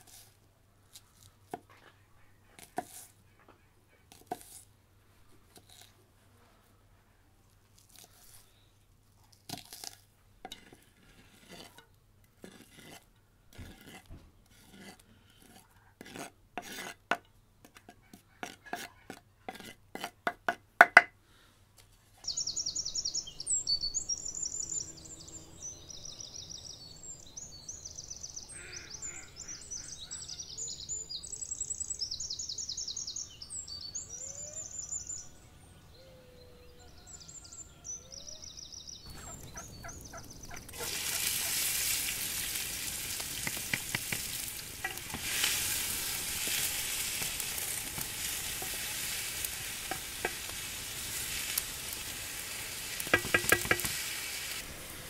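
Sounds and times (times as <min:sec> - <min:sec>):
faint outdoor hiss: 0:00.0 - 0:17.8, 0:19.2 - 0:55.0
knife chopping on wooden board: 0:19.5 - 0:21.1, 0:43.4 - 0:45.3, 0:53.0 - 0:53.9
small birds trilling: 0:22.2 - 0:54.6.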